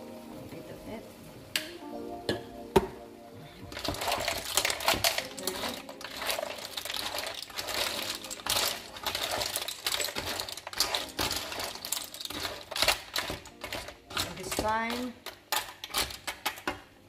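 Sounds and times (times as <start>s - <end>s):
shells clattering against a pan: 3.7s - 16.7s.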